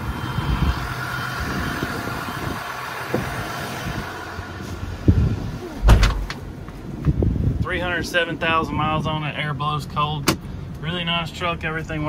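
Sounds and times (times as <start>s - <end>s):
diesel engine idling: 0.0s - 12.0s
thump: 5.8s - 6.4s.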